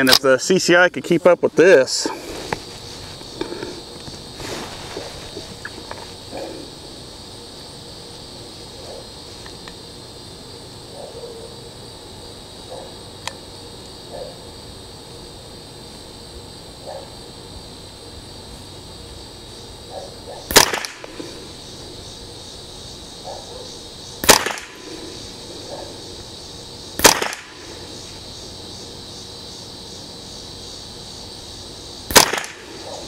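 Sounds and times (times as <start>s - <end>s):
rifle shots: 20.5s - 21.2s, 24.2s - 24.8s, 27.0s - 27.6s, 32.1s - 32.7s.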